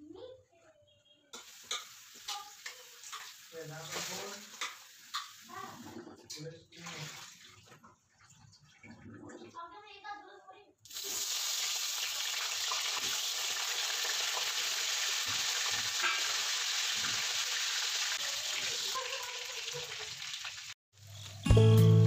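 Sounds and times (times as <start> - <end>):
potatoes frying in hot oil: 1.4 - 7.1, 10.9 - 21.4.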